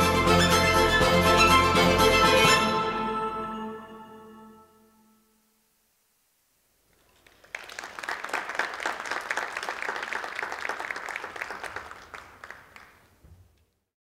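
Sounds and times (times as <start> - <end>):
audience applauding: 7.0 - 13.6.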